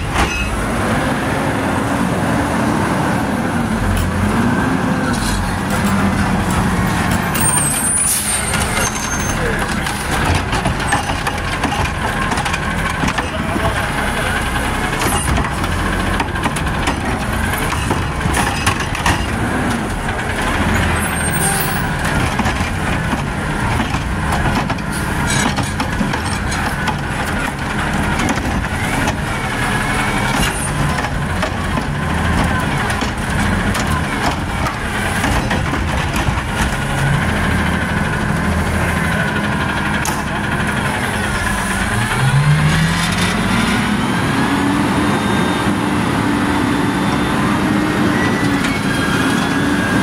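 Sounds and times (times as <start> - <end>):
garbage truck engine revving: 0.0 - 50.0
cart and trash clattering: 5.1 - 43.6.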